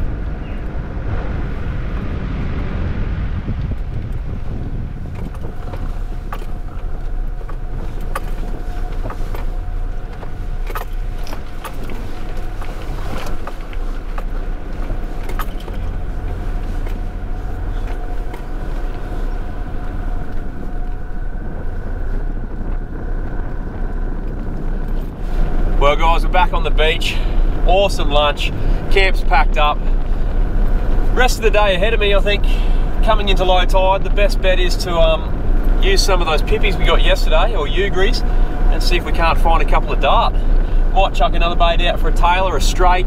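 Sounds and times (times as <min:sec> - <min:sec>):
vehicle engine and tyre noise: 0:00.0 - 0:43.0
wind rumble on microphone: 0:00.0 - 0:43.0
clicks and rattles: 0:05.1 - 0:17.1.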